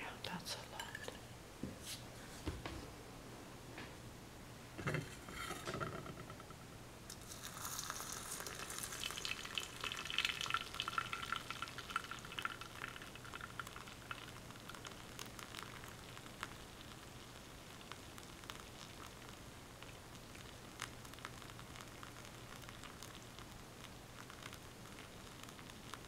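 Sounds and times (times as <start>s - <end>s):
water pouring onto tea leaves: 7.1s - 26.0s.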